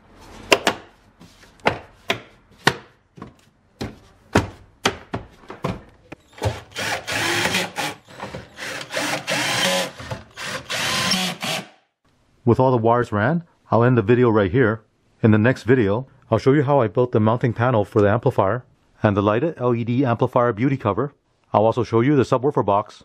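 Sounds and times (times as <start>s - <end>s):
cordless screwdriver driving screws: 6.3s - 11.8s.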